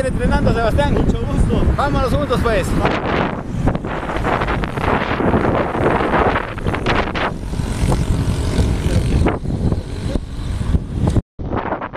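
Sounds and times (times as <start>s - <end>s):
wind buffeting microphone: 0.0s - 11.9s.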